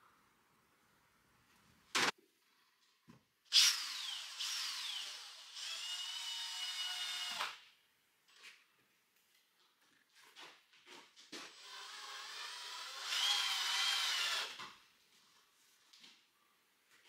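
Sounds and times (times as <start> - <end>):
cordless drill motor whine: 11.6 - 14.6.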